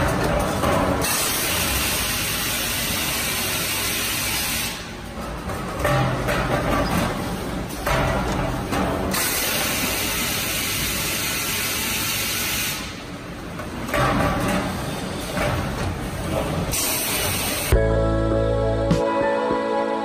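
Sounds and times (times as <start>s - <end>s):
machine hissing: 1.0s - 4.9s, 9.1s - 13.0s, 16.7s - 17.8s.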